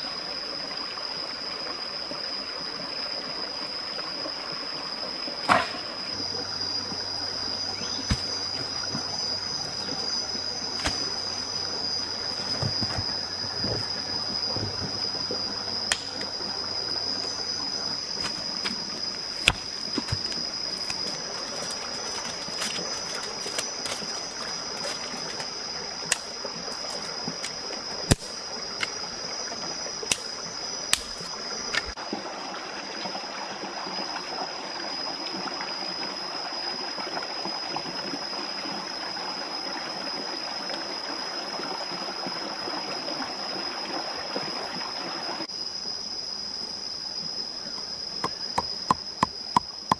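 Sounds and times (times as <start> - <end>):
stream water rushing: 3.0 - 35.5.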